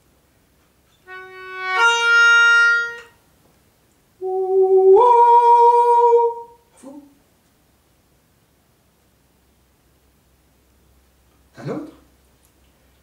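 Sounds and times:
melodica notes: 1.0 - 3.2
man singing: 4.2 - 7.0.

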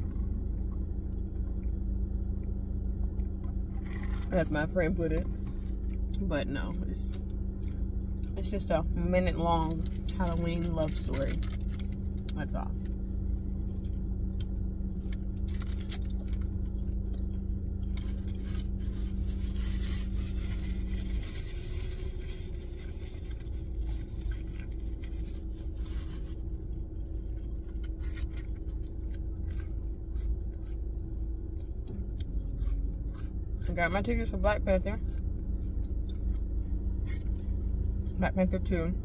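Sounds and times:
low rumble inside car: 0.0 - 39.0
steady hum: 0.0 - 39.0
paper wrapper rustling: 17.9 - 26.5
person chewing food: 26.5 - 33.7.

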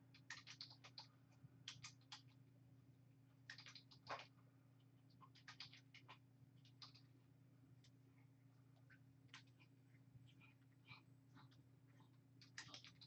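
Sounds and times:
faint low hum: 0.0 - 13.0
keyboard typing: 0.1 - 2.4, 3.5 - 4.3, 5.2 - 7.1, 12.4 - 13.0.

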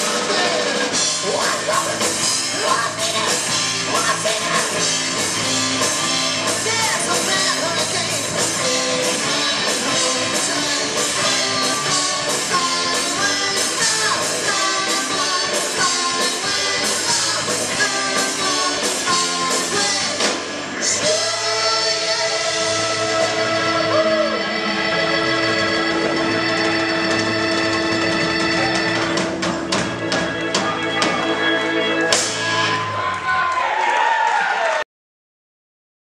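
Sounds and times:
bending lead guitar melody: 0.0 - 32.9
live rock band playing: 0.0 - 33.2.

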